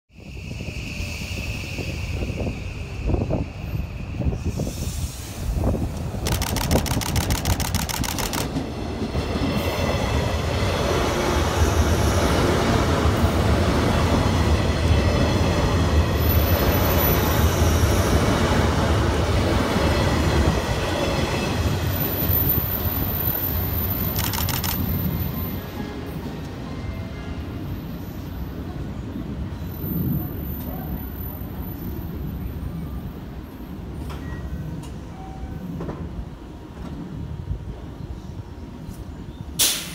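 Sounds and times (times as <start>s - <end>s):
rapid ticking: 6.2s - 8.5s, 24.2s - 24.8s.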